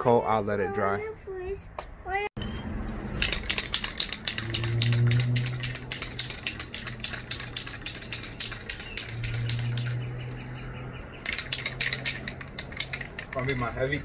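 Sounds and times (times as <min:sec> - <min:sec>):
spray can rattling: 0:03.1 - 0:10.1, 0:11.2 - 0:14.0.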